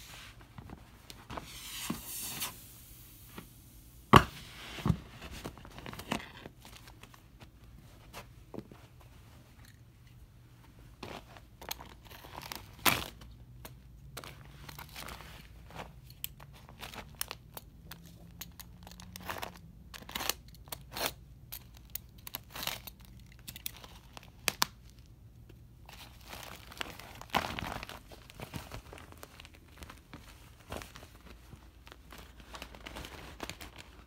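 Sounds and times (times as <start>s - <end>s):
vinyl crinkling and tearing: 5.2s - 7.8s, 11.0s - 34.0s.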